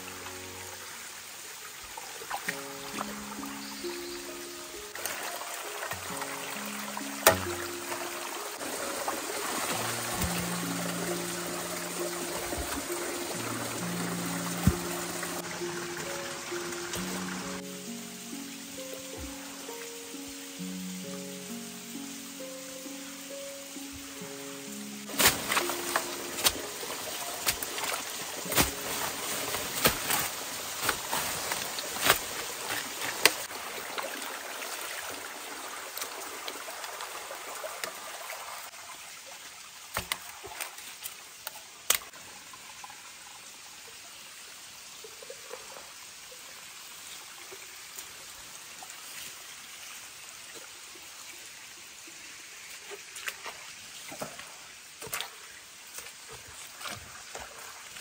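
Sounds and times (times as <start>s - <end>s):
water trickling: 0.0s - 58.0s
stones knocking: 14.5s - 15.3s, 25.1s - 33.4s.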